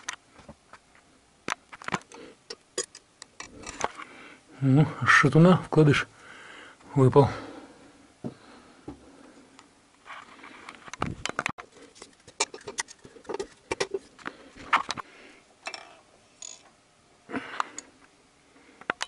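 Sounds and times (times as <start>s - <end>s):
metal parts scraping: 11.7s - 14.1s.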